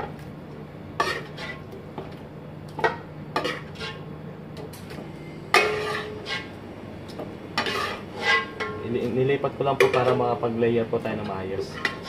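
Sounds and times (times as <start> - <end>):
low steady hum: 0.0 - 12.0
metal spoon scraping pots: 5.6 - 6.5, 7.6 - 8.8, 11.6 - 12.0.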